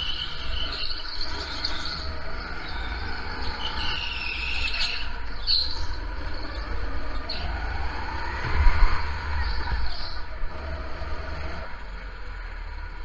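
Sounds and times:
go-kart engine running: 0:00.0 - 0:13.0
high-pitched tyre squeal: 0:00.0 - 0:13.0
wind on microphone: 0:07.6 - 0:10.6.

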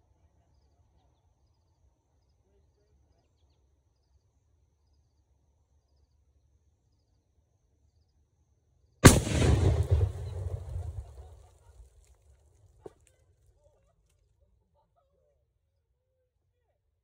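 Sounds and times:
loud explosive blast: 0:09.0 - 0:11.4.

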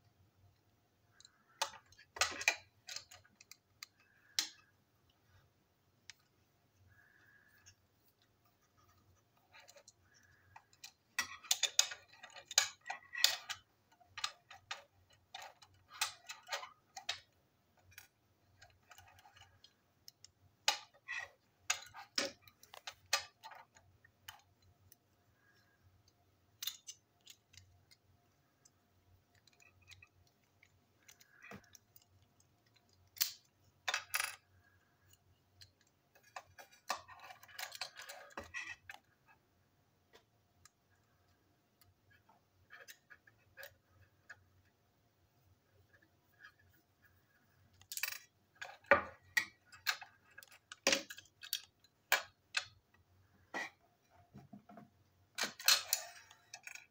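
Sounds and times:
plastic parts clicking: 0:01.1 - 0:05.2, 0:09.4 - 0:39.4, 0:47.6 - 0:53.8, 0:54.9 - 0:56.9.

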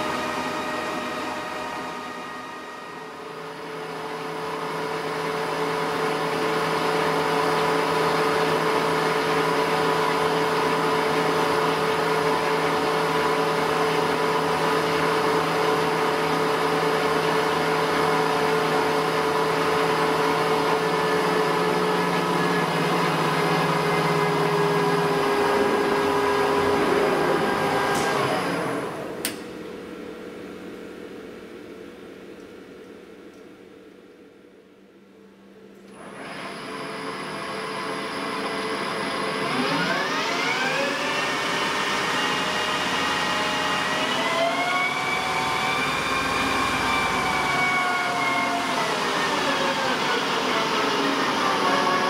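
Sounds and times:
lathe spindle whine: 0:00.0 - 0:29.2, 0:35.9 - 0:52.0
sharp click: 0:29.2 - 0:29.5.

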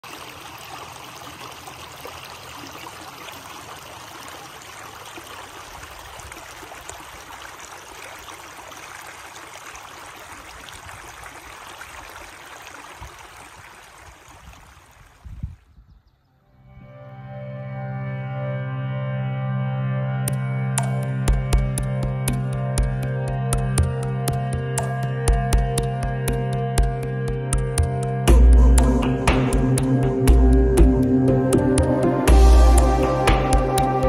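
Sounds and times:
creek trickling over rocks: 0:00.0 - 0:15.6.

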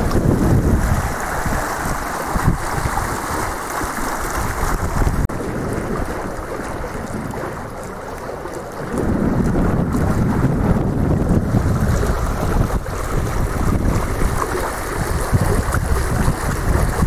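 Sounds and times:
water rushing along hull: 0:00.0 - 0:17.0
wind buffeting microphone: 0:00.0 - 0:17.0.

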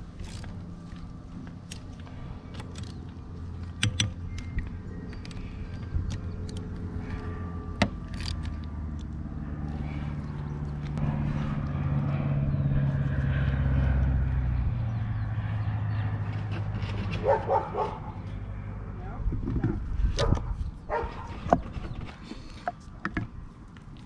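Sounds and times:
low hum: 0:00.0 - 0:24.0
dog barking: 0:17.2 - 0:18.2, 0:20.2 - 0:21.3.

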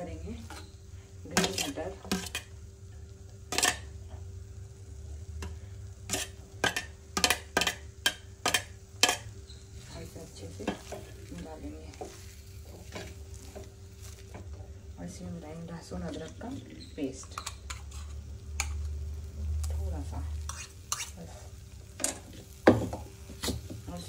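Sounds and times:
faint steady hum: 0:00.0 - 0:24.0
metal spatula scraping in clay pot: 0:00.4 - 0:02.5, 0:06.1 - 0:07.7, 0:16.0 - 0:18.8, 0:20.4 - 0:21.4.

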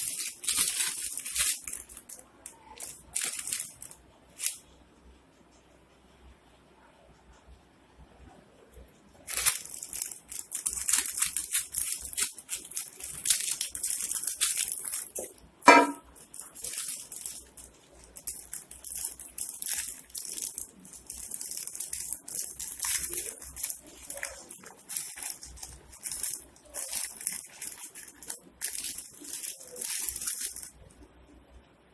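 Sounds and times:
plastic packet crinkling: 0:00.0 - 0:04.6, 0:09.2 - 0:31.0
sharp knock: 0:15.7 - 0:16.0.

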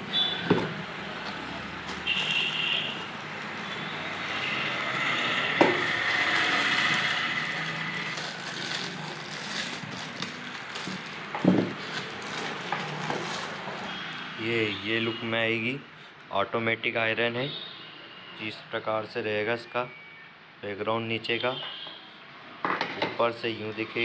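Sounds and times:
plastic wrapping crinkling: 0:01.3 - 0:04.4, 0:05.8 - 0:14.3.

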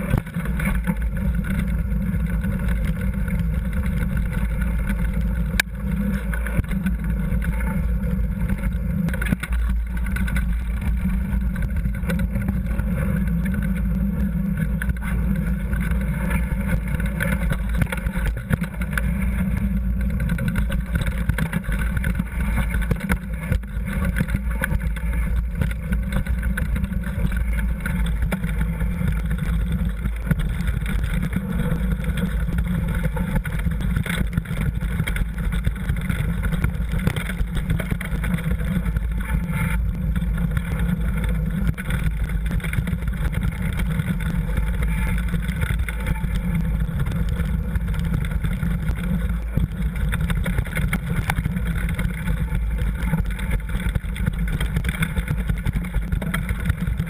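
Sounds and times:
bike rumble on gravel: 0:00.0 - 0:57.0.

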